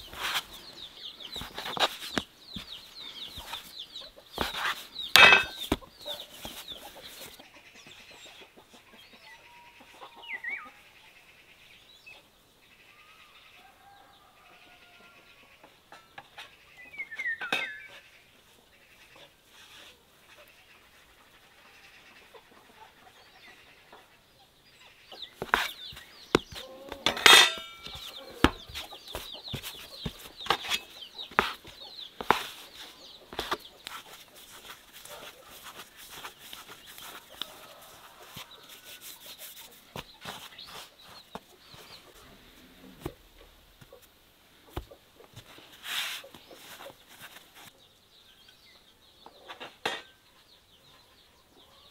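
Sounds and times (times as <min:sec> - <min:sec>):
hen clucking: 0:24.8 - 0:45.4.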